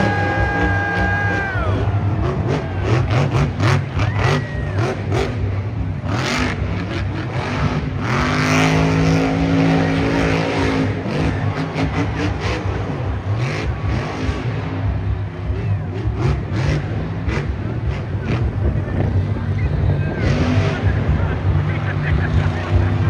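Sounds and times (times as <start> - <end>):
monster truck engine revving: 0.0 - 23.0.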